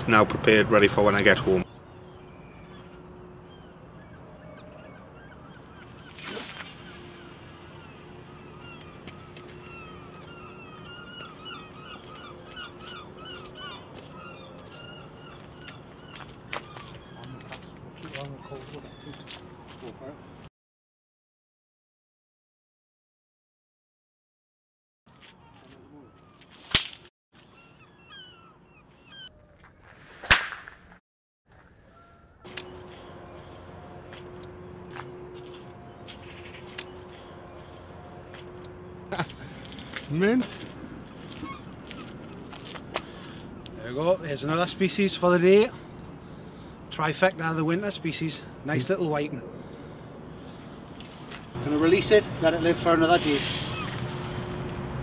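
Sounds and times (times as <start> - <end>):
flock of birds calling: 1.0 - 20.3, 27.5 - 29.6, 31.8 - 55.0
fishing rod swishing through air: 6.1 - 7.0
faint bird chirps: 27.5 - 29.6.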